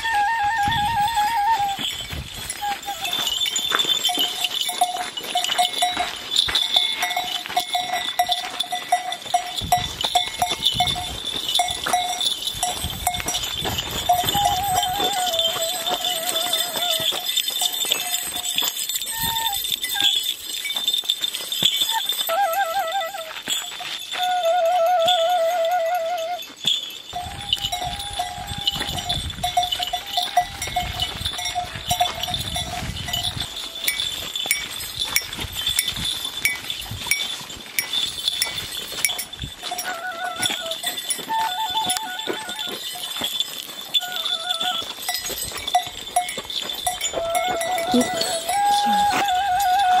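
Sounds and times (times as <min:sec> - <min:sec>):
wooden pipe trilling notes: 0:00.0 - 0:04.7, 0:11.5 - 0:20.3, 0:21.8 - 0:34.8, 0:39.1 - 0:42.9, 0:46.9 - 0:50.0
goat bells clanking: 0:00.0 - 0:50.0.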